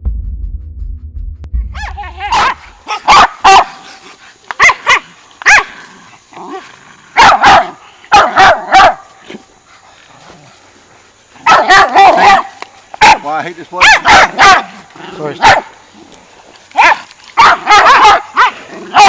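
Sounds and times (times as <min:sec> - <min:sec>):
dogs barking: 0:01.8 - 0:05.8, 0:06.5 - 0:09.4, 0:11.4 - 0:15.8, 0:16.7 - 0:19.0.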